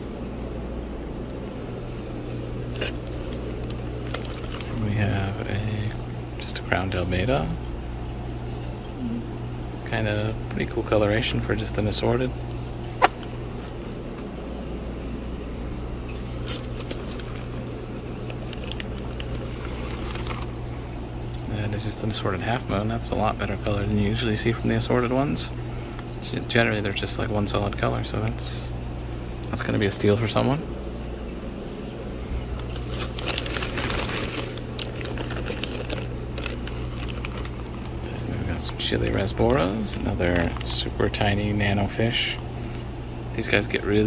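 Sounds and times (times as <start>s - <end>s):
low electrical hum: 0.0s - 44.0s
plastic bags crinkling: 2.6s - 5.3s, 16.3s - 20.8s, 32.4s - 41.6s.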